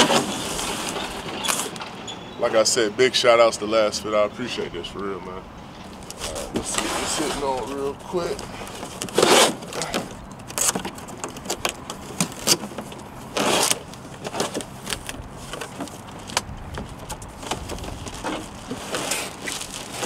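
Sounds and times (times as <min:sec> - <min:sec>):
cardboard rustling and rubbing: 0:05.9 - 0:20.0.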